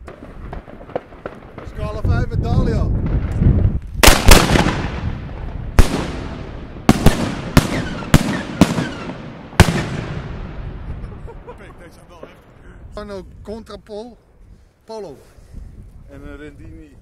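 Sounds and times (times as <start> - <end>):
firework bangs with echo: 4.0 - 11.0.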